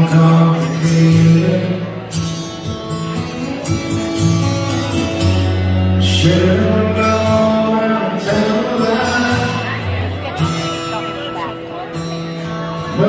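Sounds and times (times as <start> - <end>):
man singing: 0.0 - 2.4, 5.0 - 10.6, 12.6 - 13.0
acoustic guitars playing: 0.0 - 13.0.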